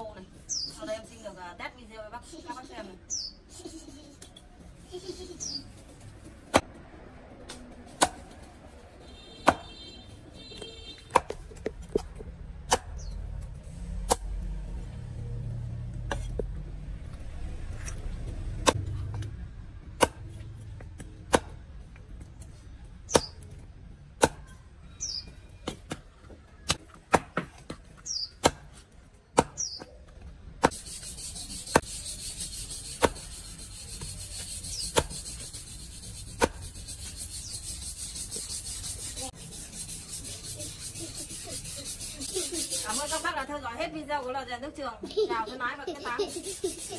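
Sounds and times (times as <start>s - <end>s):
cleaver chopping meat on wood: 9.4s - 9.8s, 11.0s - 12.1s, 20.0s - 20.3s, 21.0s - 21.6s, 23.1s - 23.4s, 24.2s - 24.6s, 26.6s - 29.8s, 33.0s - 33.3s, 36.4s - 36.7s.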